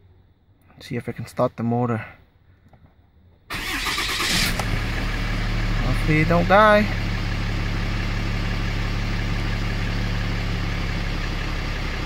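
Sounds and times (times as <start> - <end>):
diesel engine idling: 3.5 - 12.0.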